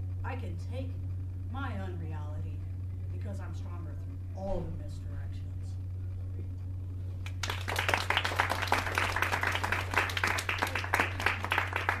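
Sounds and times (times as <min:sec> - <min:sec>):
steady low hum: 0:00.0 - 0:12.0
audience applauding: 0:07.2 - 0:12.0.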